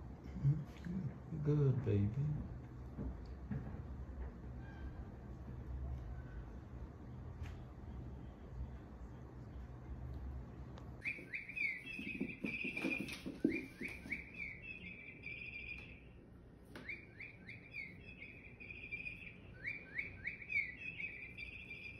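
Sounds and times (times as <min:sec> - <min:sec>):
high bird-like chirping: 0:11.0 - 0:16.2, 0:16.8 - 0:21.9.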